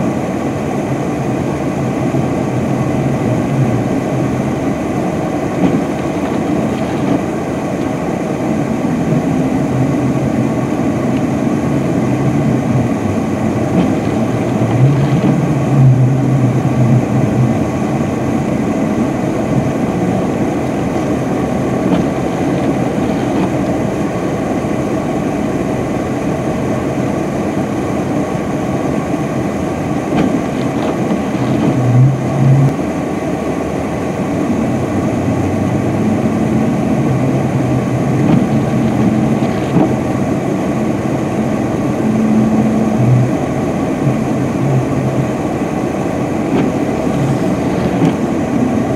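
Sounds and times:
truck engine working hard: 0.0 - 48.9
wheels spinning in snow: 5.6 - 17.7, 19.0 - 24.2, 30.0 - 32.8, 35.9 - 40.2, 46.6 - 48.9.

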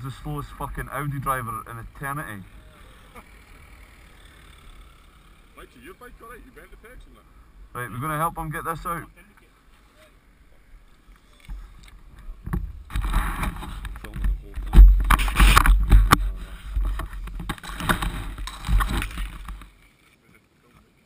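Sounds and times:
camera handling rubbing and knocks: 11.2 - 19.9.

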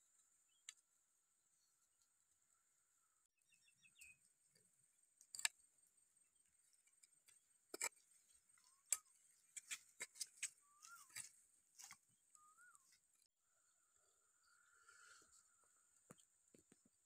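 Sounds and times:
stick scraping in dry soil: 6.8 - 13.2
bird whistles: 12.4 - 12.9.

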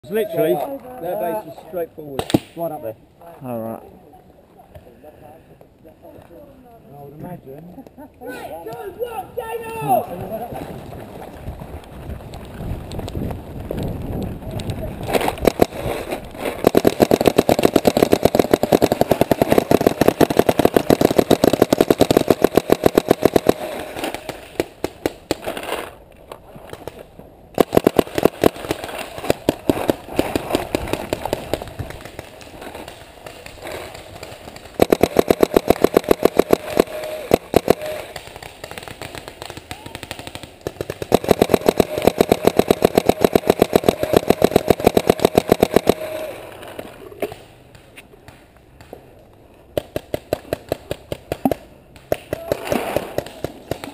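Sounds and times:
paintball marker rapid firing: 15.1 - 25.5, 27.6 - 46.3, 49.8 - 53.9.

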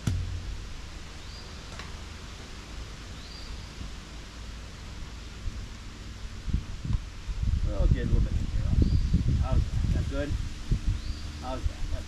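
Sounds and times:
steady hiss with low rumble: 0.0 - 12.0.

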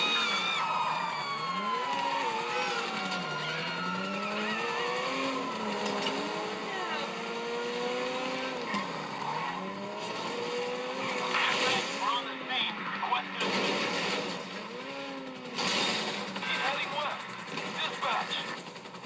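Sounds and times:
car driving on dirt: 0.0 - 19.0
tyres skidding: 0.0 - 19.0
video game car engine revving: 0.0 - 19.0.

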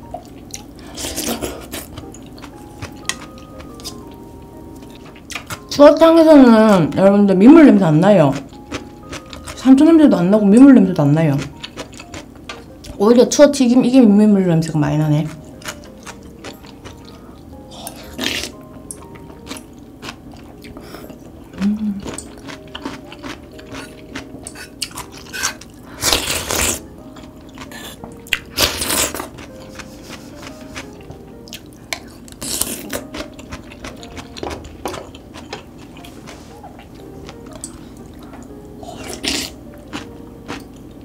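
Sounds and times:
soft background music: 0.0 - 41.0
chewing with crunches: 0.2 - 4.1, 11.3 - 12.7, 15.2 - 41.0.

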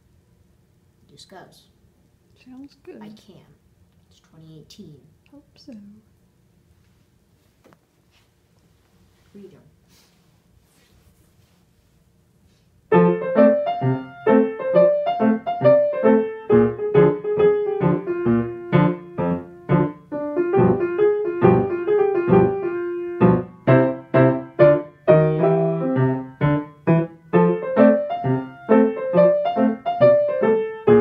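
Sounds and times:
grand piano playing: 12.9 - 31.0.

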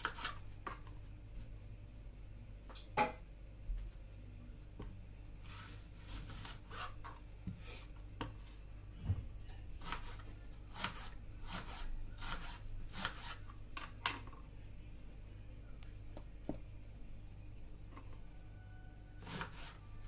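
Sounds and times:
steady low hum: 0.0 - 19.1
kitchen scrapes and rustles: 5.4 - 7.0.

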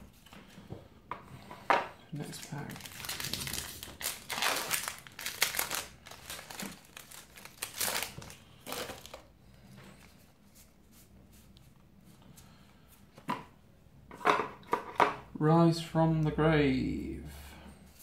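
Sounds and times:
foil wrapper crinkling: 2.2 - 9.3.

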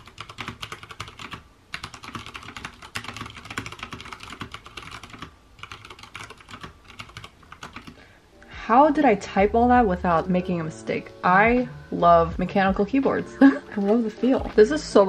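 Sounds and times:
fast typing on mechanical keyboard: 0.0 - 8.0.

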